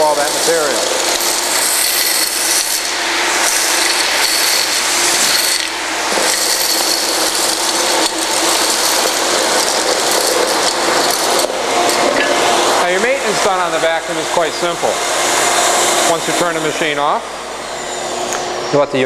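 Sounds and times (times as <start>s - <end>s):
plastic chips clattering: 0.0s - 12.1s
industrial vacuum rushing air: 0.0s - 19.0s.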